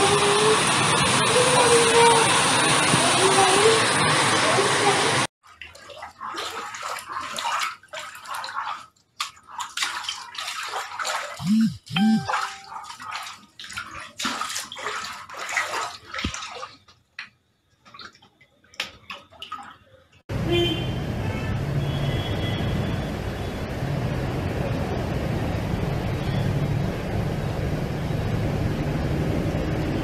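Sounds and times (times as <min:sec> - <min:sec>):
water splashing and gushing: 0:00.0 - 0:20.0
brief tone: 0:11.4 - 0:12.7.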